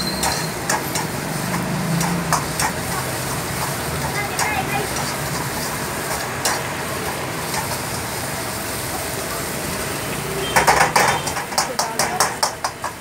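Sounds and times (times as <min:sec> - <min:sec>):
metal spatula striking a wok: 0:00.0 - 0:07.8, 0:10.5 - 0:13.0
steady rushing background noise: 0:00.2 - 0:13.0.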